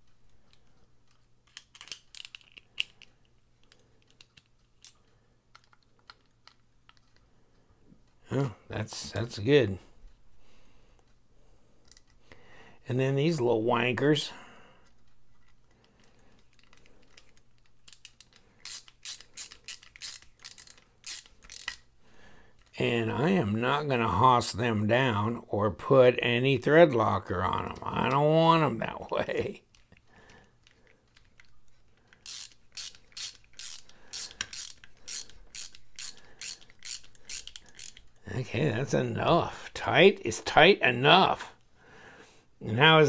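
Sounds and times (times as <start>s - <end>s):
rasping ratchet strokes: 18.0s - 21.9s, 32.2s - 38.1s
screwdriver driving screws: 32.2s - 38.0s.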